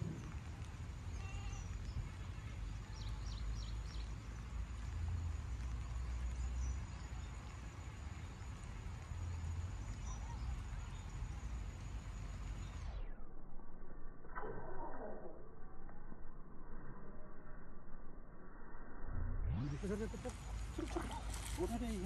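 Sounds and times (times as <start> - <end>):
low rumble: 0.0 - 5.8, 11.2 - 22.0
faint high chirps: 5.6 - 22.0.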